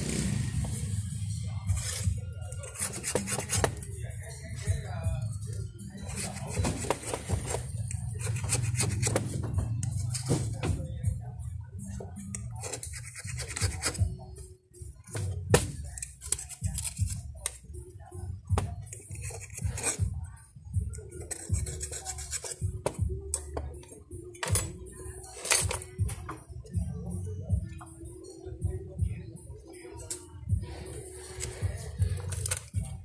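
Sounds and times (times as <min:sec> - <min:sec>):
music: 0:00.0 - 0:33.0
blade scraping metal frame: 0:01.6 - 0:03.9, 0:21.1 - 0:22.7.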